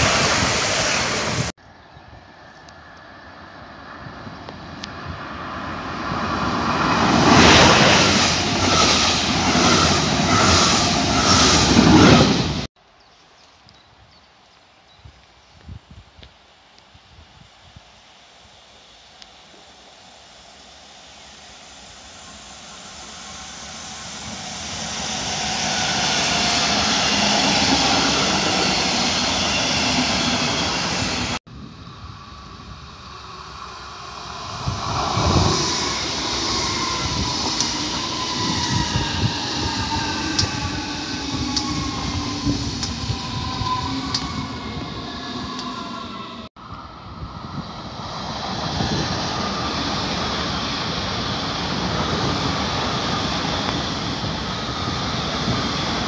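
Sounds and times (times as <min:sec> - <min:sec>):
train rumble and rail noise: 0:00.0 - 0:12.7, 0:18.8 - 0:56.0
train motor whine: 0:20.8 - 0:46.8.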